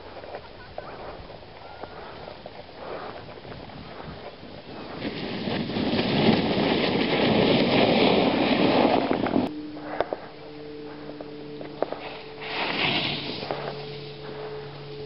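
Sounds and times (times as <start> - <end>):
wind buffeting microphone: 0.0 - 9.5
low hum: 7.0 - 15.0.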